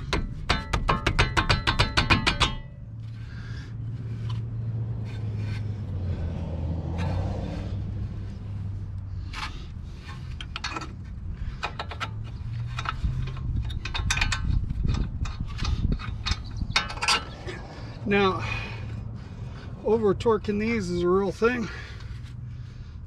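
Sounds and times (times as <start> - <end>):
metal tools clinking and scraping: 9.2 - 17.8.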